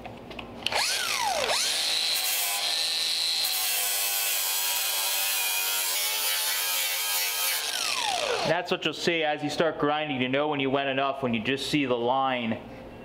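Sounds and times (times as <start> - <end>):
angle grinder grinding steel: 0.7 - 8.6.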